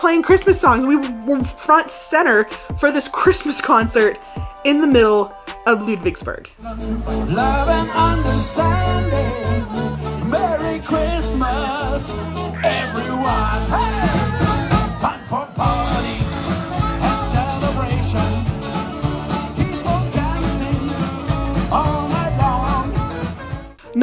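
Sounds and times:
drums: 0.0 - 1.6, 2.3 - 23.8
person singing: 6.5 - 24.0
electric guitars: 6.6 - 24.0
live rock band playing: 6.9 - 23.8
saxophone: 11.8 - 19.2.

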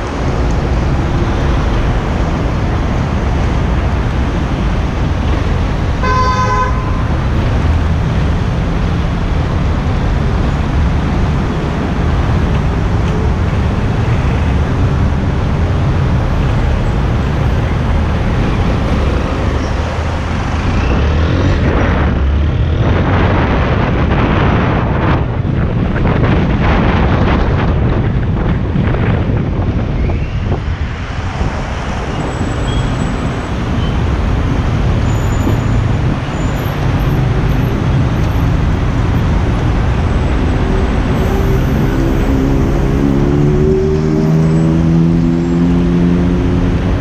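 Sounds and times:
street traffic: 0.0 - 47.0
wind rush on microphone: 0.0 - 47.0
vehicle horn honking: 6.0 - 7.2.

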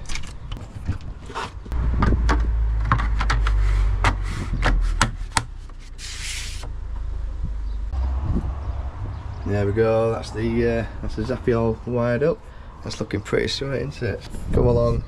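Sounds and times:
brief hissing scrape: 5.9 - 6.6
low rumble: 6.7 - 9.5.

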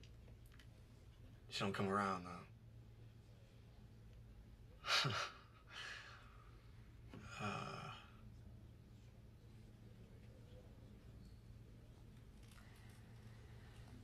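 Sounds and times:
low steady hum: 0.0 - 14.0
person sighing: 7.2 - 8.1.

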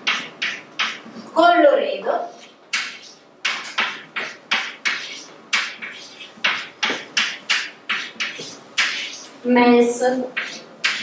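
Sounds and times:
sharp taps with hissing tail: 0.1 - 1.0.

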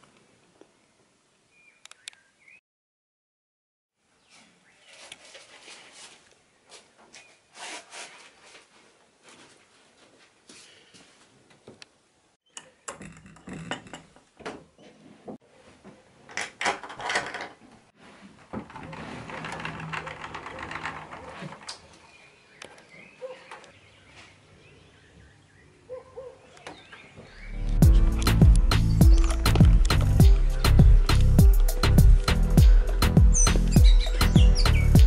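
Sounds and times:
footsteps: 4.4 - 11.8
wooden door opening: 12.6 - 14.7, 16.3 - 17.6, 18.5 - 22.2
rustling and knocks: 12.9 - 22.1.

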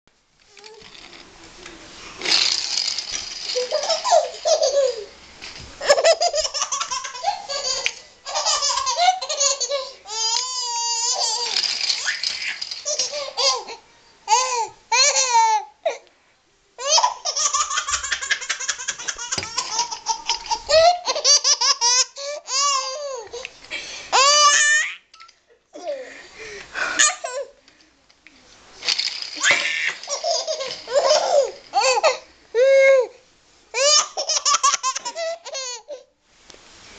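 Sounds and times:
baby laughing: 3.5 - 5.2, 5.8 - 15.7, 16.8 - 23.4, 29.4 - 32.2, 33.8 - 36.1.

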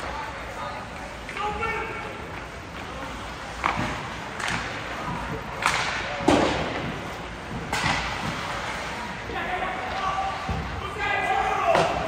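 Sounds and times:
hockey sticks and puck clacking: 0.0 - 12.0
puck thudding against boards: 3.6 - 8.6.

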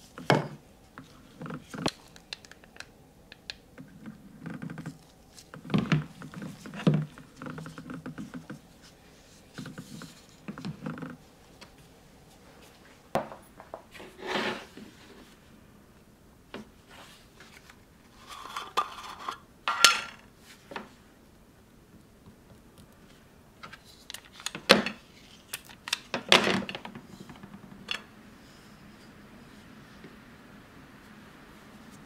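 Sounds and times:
metal tin lid scraping: 18.2 - 20.0.

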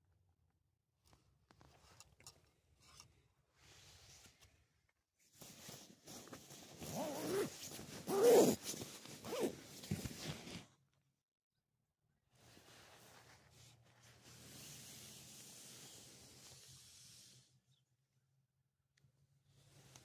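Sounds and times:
nylon fabric rustling: 5.3 - 10.7
zipper being pulled: 6.1 - 10.7.

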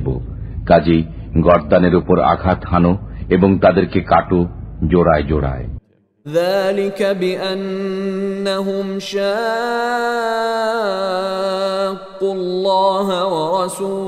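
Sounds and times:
person chanting melodically: 6.3 - 14.0.

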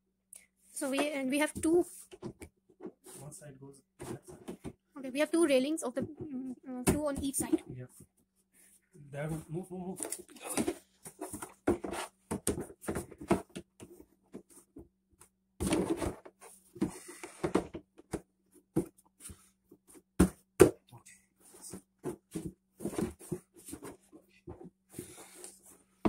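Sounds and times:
plastic bed parts knocking: 10.6 - 14.9.

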